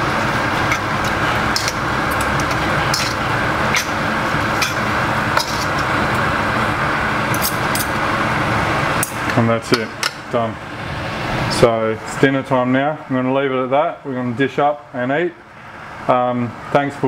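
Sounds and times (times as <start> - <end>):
metal utensil scraping frying pan: 0.0 - 6.0
steady rushing noise with hum: 0.0 - 17.0.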